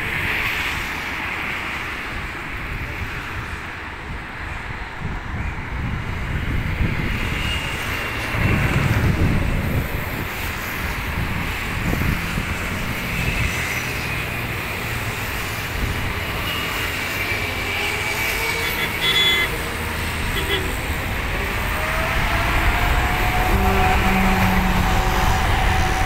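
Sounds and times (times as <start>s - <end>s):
traffic noise: 0.0s - 26.0s
wind: 0.0s - 26.0s
distant jet engines rumbling: 5.8s - 26.0s.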